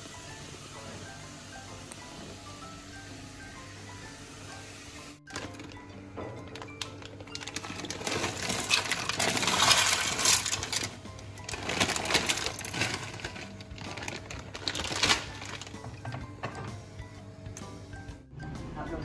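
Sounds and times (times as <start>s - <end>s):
background music: 0.0s - 19.0s
plastic bag of pasta rustling: 5.2s - 5.8s, 6.5s - 15.9s.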